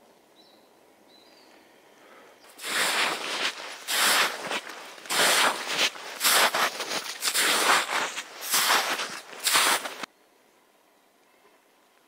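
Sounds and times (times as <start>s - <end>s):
boots crunching through snow: 2.5s - 10.1s.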